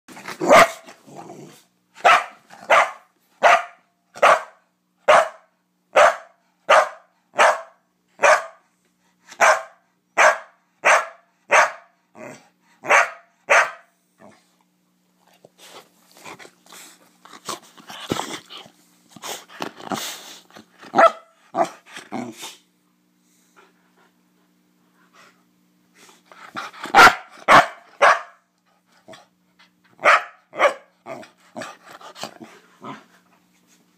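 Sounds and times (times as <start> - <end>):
dog barking: 0.4 - 0.9, 2.0 - 8.6, 9.4 - 12.0, 12.8 - 13.9, 20.9 - 21.8, 26.9 - 28.4, 30.0 - 30.9.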